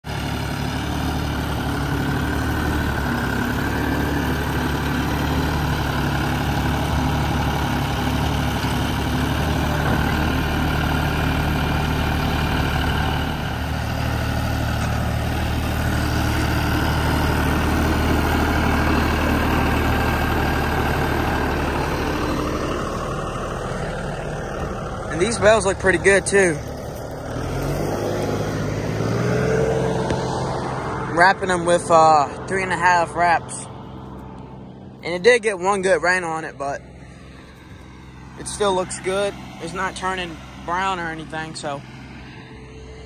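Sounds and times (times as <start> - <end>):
tractor diesel engine running: 0.0 - 43.0.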